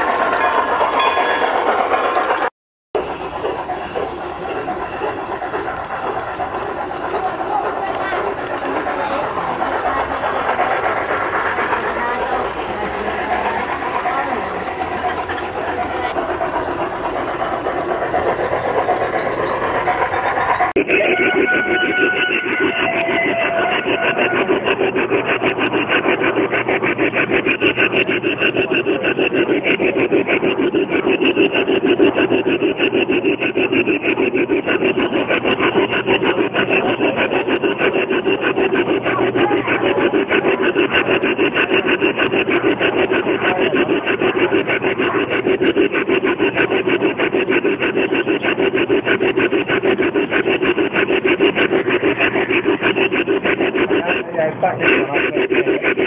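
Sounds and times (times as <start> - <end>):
model train wheels clattering: 0.0 - 21.0.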